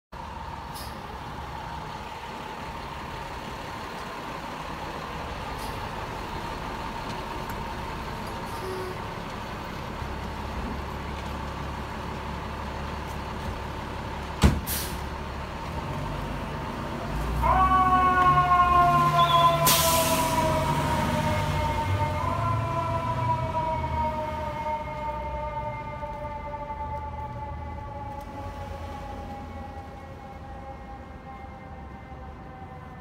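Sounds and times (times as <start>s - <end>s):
fire engine idling: 0.2s - 15.8s, 18.2s - 26.9s
air brakes hissing: 0.7s - 1.1s, 5.5s - 6.0s, 14.5s - 15.1s, 19.3s - 20.6s.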